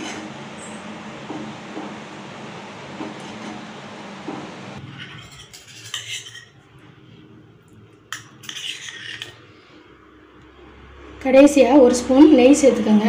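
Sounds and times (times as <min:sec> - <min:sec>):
wooden spatula scraping pan: 0:00.0 - 0:00.4, 0:02.9 - 0:06.6, 0:08.4 - 0:09.4
kitchen utensils clinking: 0:04.8 - 0:06.6.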